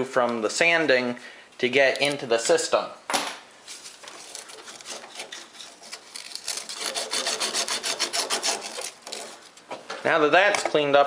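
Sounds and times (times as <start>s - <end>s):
sanding copper tubing by hand: 4.2s - 9.5s.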